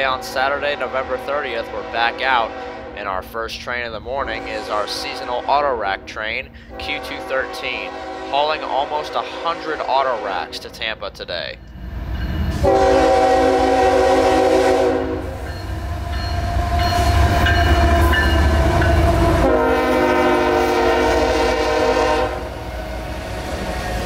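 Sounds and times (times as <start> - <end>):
train engine and cars rumbling: 0.0 - 24.0
locomotive air horn blasts: 0.7 - 3.0, 6.6 - 10.6, 12.6 - 22.6.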